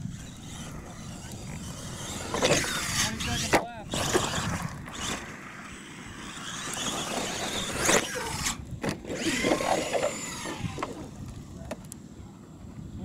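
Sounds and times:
toy truck motor whining: 0.0 - 11.2.

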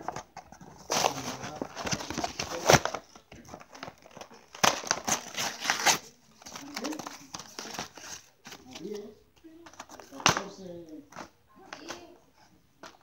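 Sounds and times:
packaging crinkling and tearing: 0.0 - 9.0.

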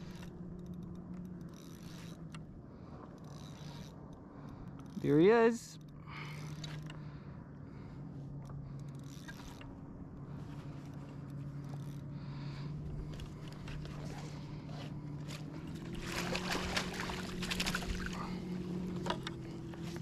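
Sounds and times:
low motor hum: 0.0 - 20.0
water splashing and sloshing: 8.8 - 20.0.

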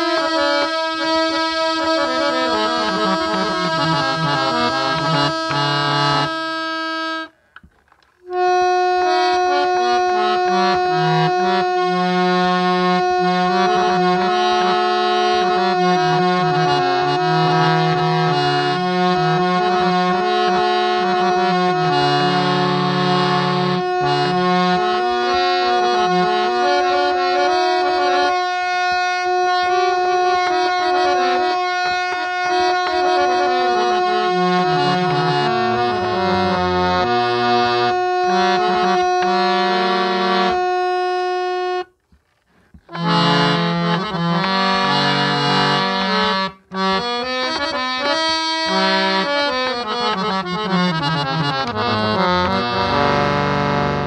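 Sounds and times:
harmonium melody with drone: 0.0 - 54.0.

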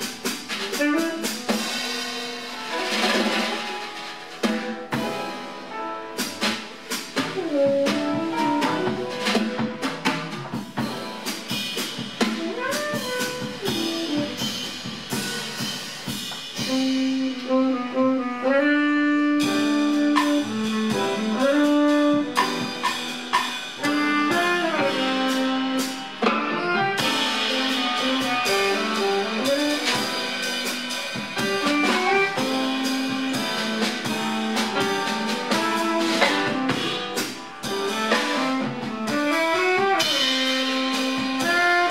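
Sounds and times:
drum kit: 0.0 - 41.9
piano: 0.0 - 41.9
tenor saxophone: 0.5 - 2.8, 7.4 - 10.4, 12.2 - 14.8, 16.6 - 41.9.

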